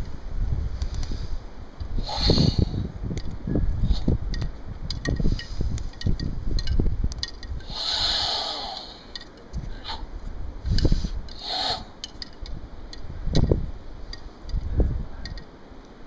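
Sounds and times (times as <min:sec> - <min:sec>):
wind buffeting microphone: 0:00.0 - 0:15.7
forceful breathing: 0:00.9 - 0:02.9, 0:07.6 - 0:12.0.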